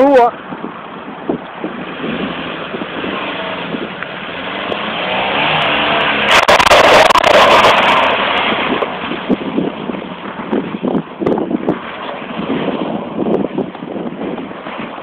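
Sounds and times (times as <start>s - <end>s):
car accelerating past: 1.8s - 9.2s.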